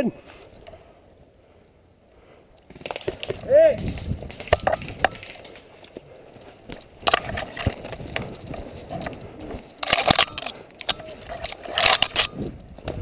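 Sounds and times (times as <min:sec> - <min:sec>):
rustling: 0:02.3 - 0:13.0
running footsteps crunching twigs: 0:02.6 - 0:13.0.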